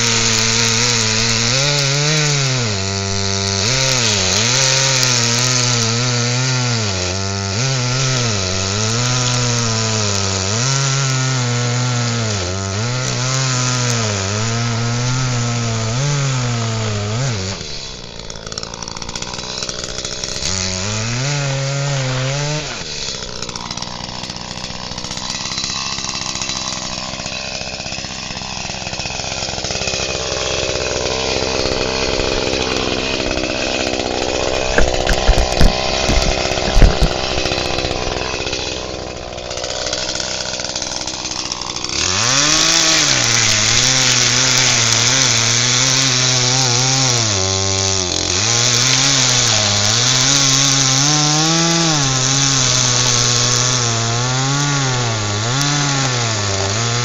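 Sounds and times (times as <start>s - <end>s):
chainsaw cutting log: 0.0s - 57.0s
chainsaw running: 0.0s - 57.0s
heavy knocks: 31.4s - 38.5s.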